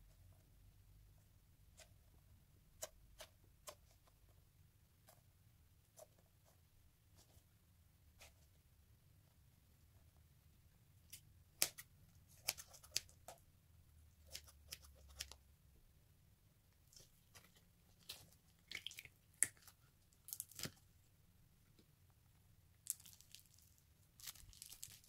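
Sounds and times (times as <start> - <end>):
stress ball skin crackling: 16.8 - 21.0, 22.8 - 25.0.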